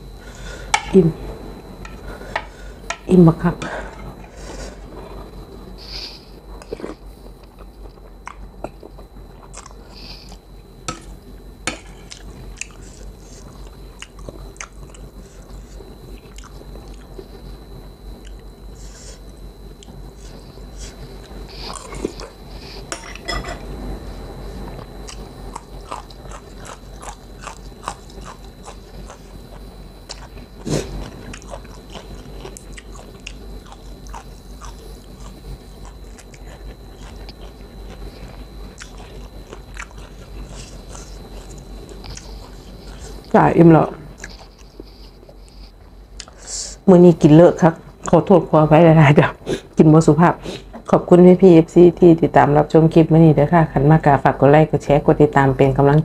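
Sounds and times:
low hum: 0:00.0 - 0:54.5
faint high whine: 0:00.0 - 0:56.0
person chewing food: 0:03.9 - 0:17.4, 0:18.2 - 0:23.0, 0:24.6 - 0:43.3, 0:44.0 - 0:46.5.

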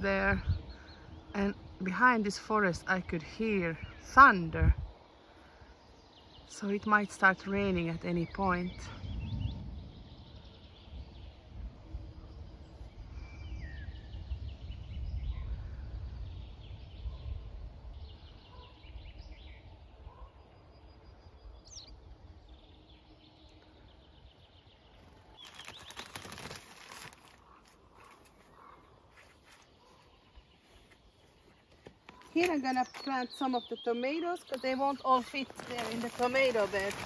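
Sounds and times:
small birds chirping: 0:00.0 - 0:37.0
low rumble: 0:08.9 - 0:18.4.

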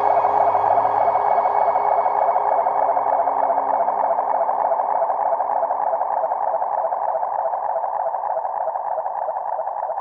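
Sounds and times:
organ-style keyboard drone: 0:00.0 - 0:04.2.

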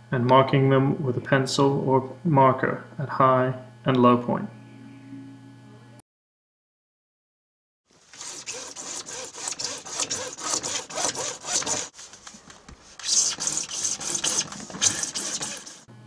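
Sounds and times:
hand saw cutting pipe: 0:08.1 - 0:12.0, 0:13.0 - 0:15.9.

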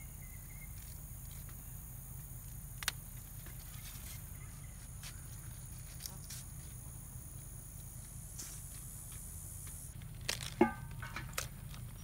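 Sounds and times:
steady high hiss: 0:00.0 - 0:10.0
stems rustling: 0:02.5 - 0:12.0.

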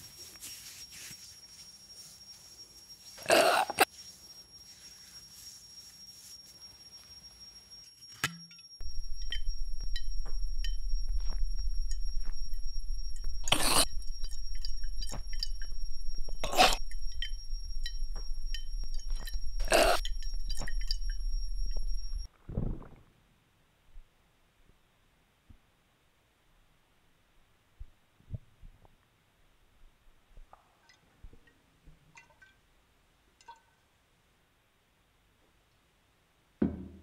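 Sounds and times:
thin high ringing: 0:00.0 - 0:22.3
loud deep hum: 0:08.8 - 0:22.3
man gulping: 0:09.0 - 0:17.4, 0:18.1 - 0:23.1.

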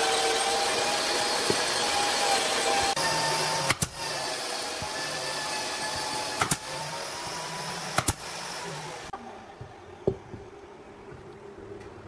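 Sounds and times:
nail gun firing into wood: 0:03.7 - 0:04.0, 0:06.4 - 0:06.7, 0:08.0 - 0:08.3.

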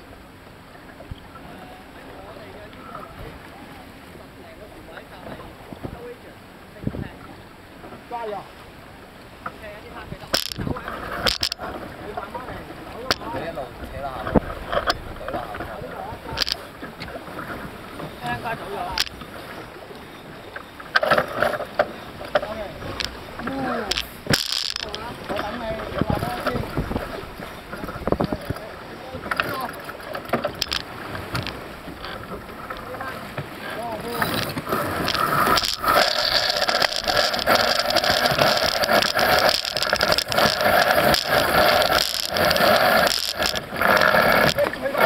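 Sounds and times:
water rushing past boat: 0:00.0 - 0:45.0
wind: 0:00.0 - 0:45.0
crew voices: 0:09.5 - 0:45.0
sharp clicks and knocks: 0:10.3 - 0:11.7, 0:13.0 - 0:13.5, 0:16.3 - 0:17.2, 0:18.2 - 0:19.3, 0:20.9 - 0:33.5, 0:34.1 - 0:44.8
lines rattling through winches: 0:10.3 - 0:19.5, 0:20.8 - 0:45.0.

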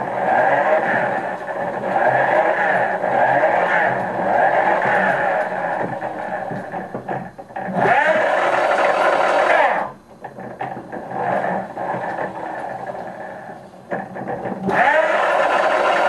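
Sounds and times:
electric motors whining: 0:00.0 - 0:16.0.

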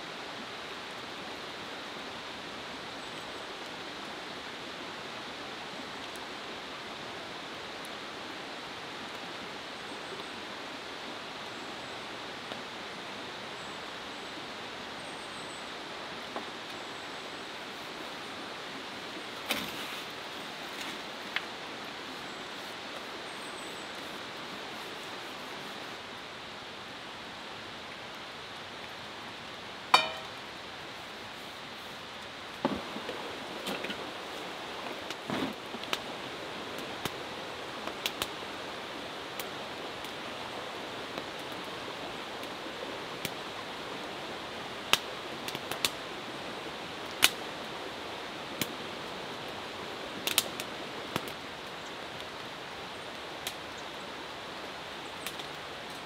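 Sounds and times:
background hiss: 0:00.0 - 0:56.0
wood fire crackling: 0:23.9 - 0:42.6, 0:44.7 - 0:46.2, 0:47.0 - 0:52.4, 0:53.0 - 0:54.0, 0:54.7 - 0:56.0
sharp clink: 0:30.0 - 0:30.4.

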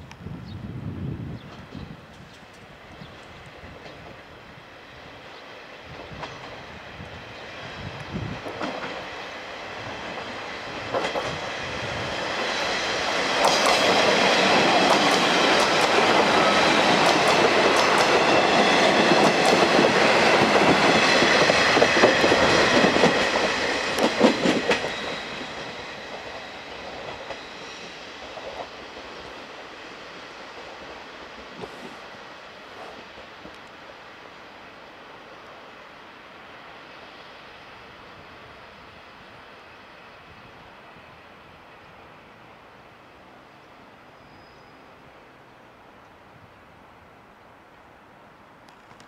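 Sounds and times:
diesel train passing: 0:00.0 - 0:49.0
wheels clacking over rail joints: 0:08.4 - 0:29.2.

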